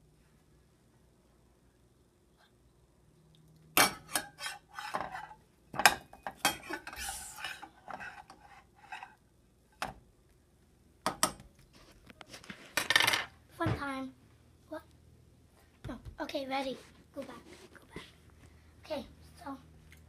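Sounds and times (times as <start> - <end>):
metal spatula scraping frying pan: 3.8 - 5.4, 6.4 - 9.2.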